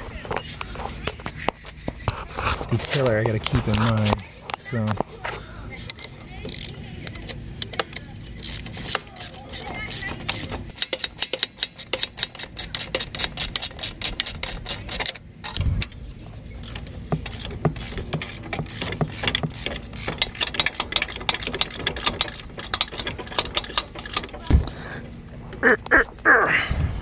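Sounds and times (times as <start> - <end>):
ratcheting wrench clicking: 5.9 - 16.0, 16.6 - 24.5.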